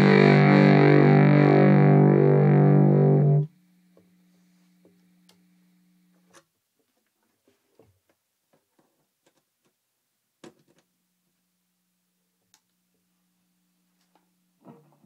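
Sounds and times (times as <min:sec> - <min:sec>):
distorted electric guitar chord: 0:00.0 - 0:03.6
faint low hum: 0:01.8 - 0:15.0.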